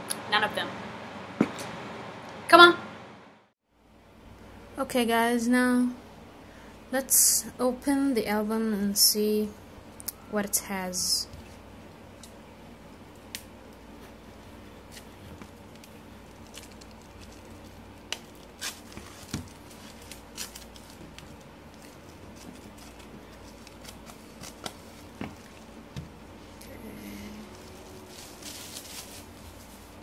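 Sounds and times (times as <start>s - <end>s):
plastic shrink wrap tearing: 15.7s - 25.1s, 28.1s - 29.8s.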